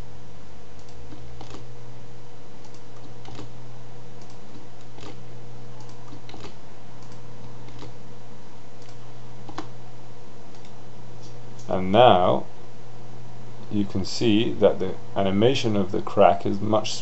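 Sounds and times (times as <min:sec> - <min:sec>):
steady low hum: 0:00.0 - 0:17.0
keyboard clicks: 0:00.8 - 0:01.7, 0:02.6 - 0:03.6, 0:04.2 - 0:05.2, 0:05.8 - 0:08.0, 0:08.8 - 0:09.7, 0:10.5 - 0:11.7.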